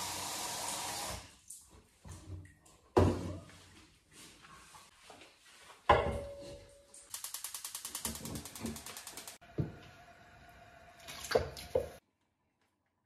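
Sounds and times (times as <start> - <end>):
rapid even ticks: 7.1 - 9.4.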